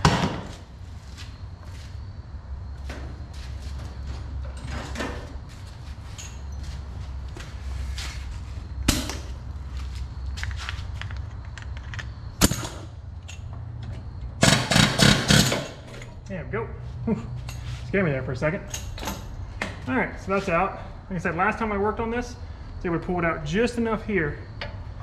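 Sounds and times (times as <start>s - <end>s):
steady low hum: 0.0s - 25.0s
pneumatic air hammer hammering: 14.4s - 16.1s.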